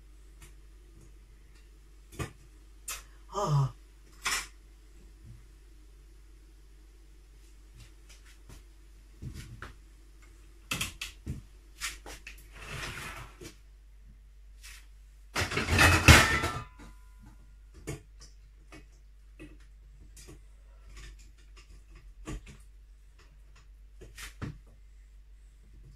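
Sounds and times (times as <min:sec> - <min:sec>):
kitchen knocks and clicks: 0:15.4 - 0:17.0.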